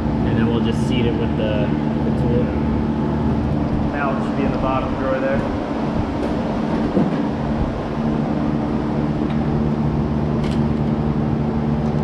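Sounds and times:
low machine hum: 0.0 - 12.0.

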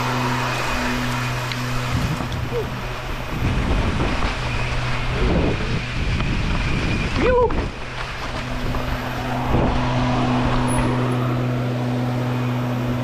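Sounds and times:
bike tyres and frame rattling: 0.0 - 13.0
steady low buzz: 0.0 - 13.0
wind noise on camera: 1.5 - 11.1.

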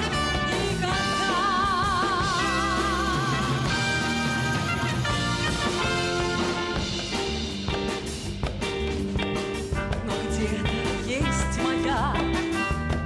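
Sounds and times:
woman singing: 0.0 - 4.2, 10.0 - 12.8
orchestra with brass playing: 0.0 - 7.6, 9.6 - 11.8, 12.4 - 13.0.

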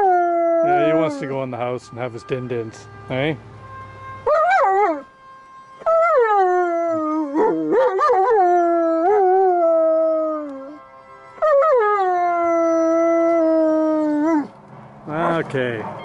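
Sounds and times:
dog howling: 0.0 - 1.3, 4.3 - 5.0, 5.8 - 10.8, 11.4 - 14.5.

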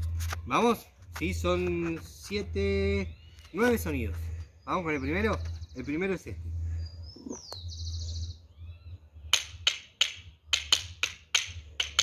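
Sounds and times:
sharp dry percussive clicks: 9.3 - 12.0.

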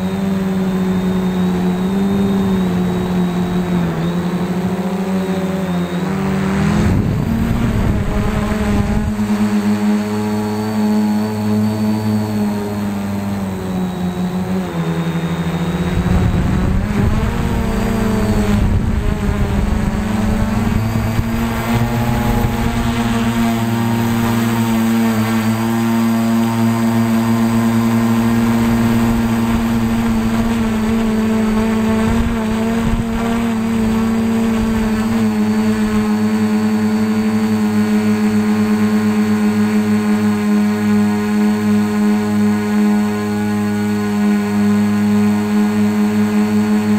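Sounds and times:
quadcopter motors droning: 0.0 - 46.9
wind buffeting microphone: 6.6 - 9.4, 15.7 - 25.0, 27.9 - 36.1.

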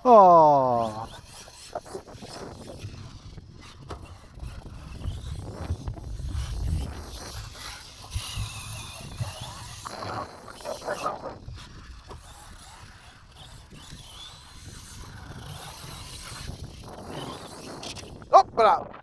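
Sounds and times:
distant electric rc car whine: 0.0 - 18.3
wind rumbling on microphone: 0.4 - 19.0.

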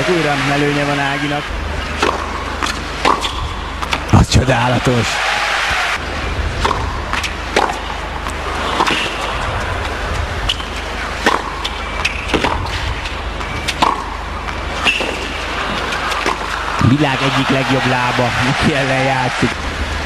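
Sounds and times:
low background hum: 0.0 - 20.0
tennis ball bouncing: 2.0 - 4.1, 6.6 - 9.9, 10.5 - 16.7
tennis ball hit by racket: 2.0 - 4.1, 6.6 - 9.4, 10.5 - 12.8, 13.4 - 16.6.

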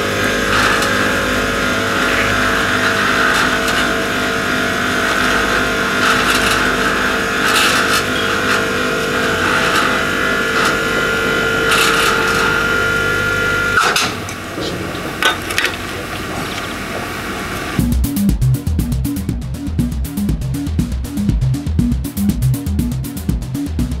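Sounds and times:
electric hoist motor whining: 0.0 - 17.9.

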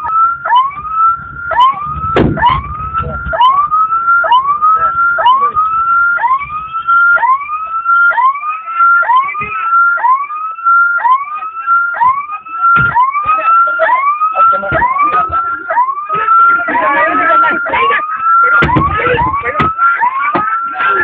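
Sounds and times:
ambulance siren sweeping: 0.0 - 21.0.

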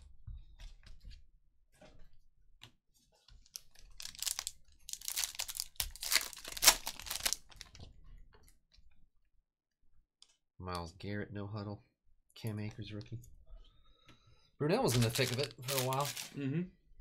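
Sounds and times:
foil wrapper crinkling and tearing: 3.8 - 7.7, 14.8 - 16.4.

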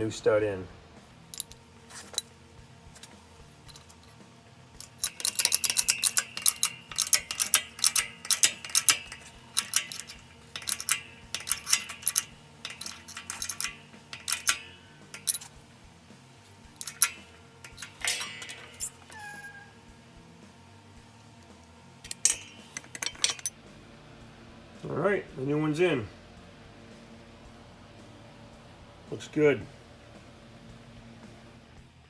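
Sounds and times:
metallic clicks and clinks: 1.3 - 2.3, 4.8 - 15.6, 16.7 - 19.5, 22.0 - 23.6.

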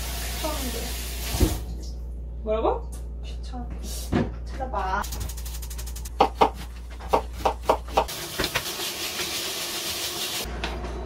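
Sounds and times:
meat sizzling in a wok: 8.1 - 10.5.

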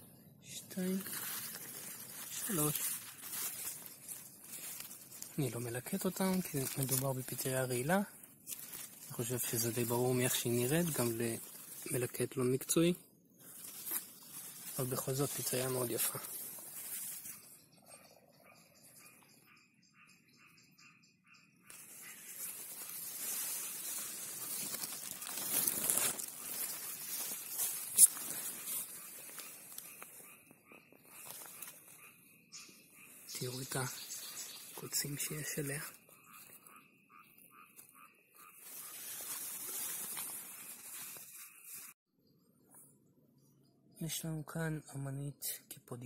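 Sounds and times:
insect chirping: 0.0 - 42.0
dry leaves rustling: 0.7 - 17.5, 21.7 - 32.2, 33.0 - 36.8, 37.8 - 42.0.

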